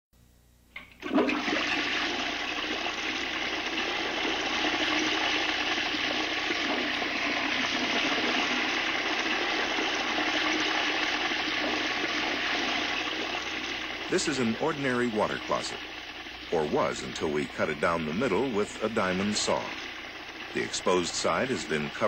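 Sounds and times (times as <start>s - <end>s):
toilet flush click: 0.8s - 17.4s
water rushing into toilet: 0.8s - 22.0s.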